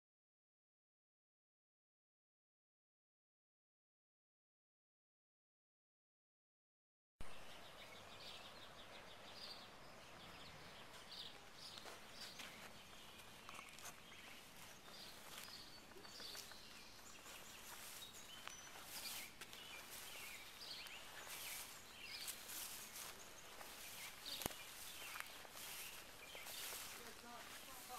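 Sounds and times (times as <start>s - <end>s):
low steady hiss: 7.2s - 14.7s.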